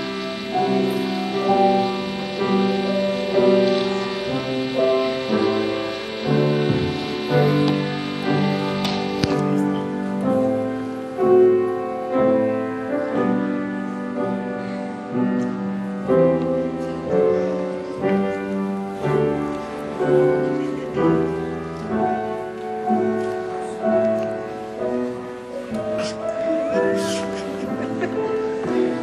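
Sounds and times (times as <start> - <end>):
gentle piano music: 0.0 - 29.0.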